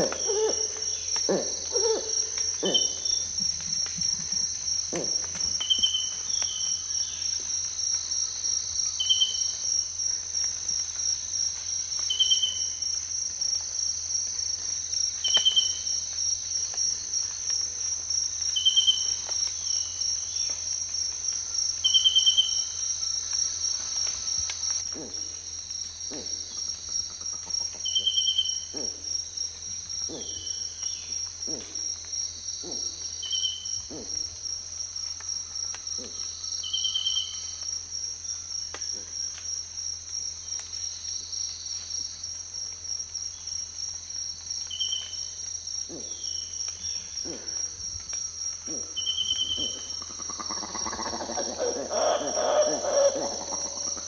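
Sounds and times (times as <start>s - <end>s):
monkey hooting call: 0.0s - 3.2s, 48.7s - 54.0s
cicadas droning: 0.0s - 54.0s.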